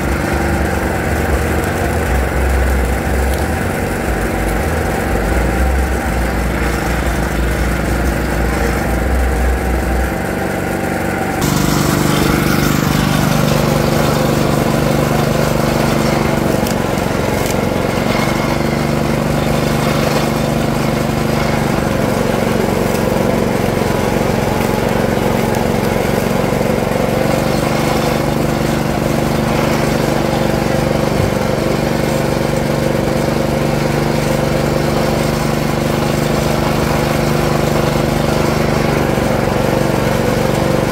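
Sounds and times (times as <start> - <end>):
sugarcane juicer rollers humming: 0.0 - 40.9
sugarcane stalks being crushed: 11.4 - 40.9.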